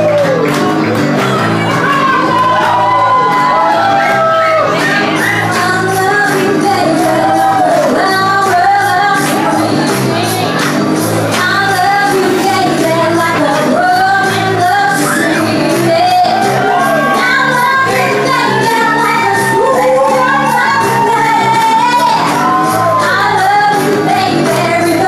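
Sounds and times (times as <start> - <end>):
woman singing with vibrato: 5.3 - 10.4, 11.3 - 25.0.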